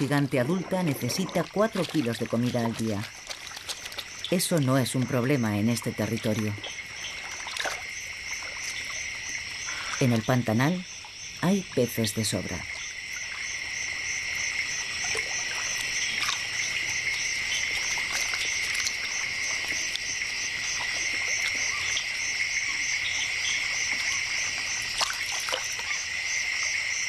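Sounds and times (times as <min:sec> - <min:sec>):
frogs trilling: 0:00.0 - 0:27.0
insects buzzing: 0:00.0 - 0:27.0
small water splashes: 0:00.0 - 0:27.0.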